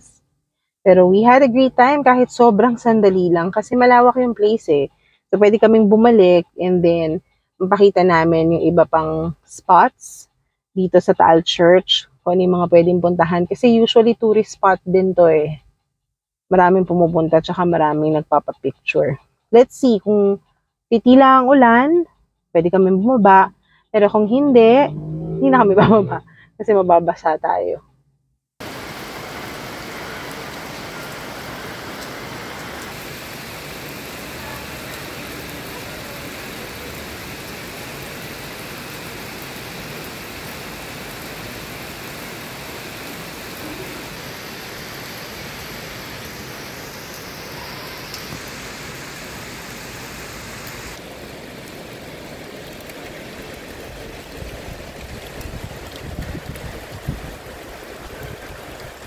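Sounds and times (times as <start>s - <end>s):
low bumps: 24.1s - 27.1s
rain on wet pavement: 28.6s - 59.0s.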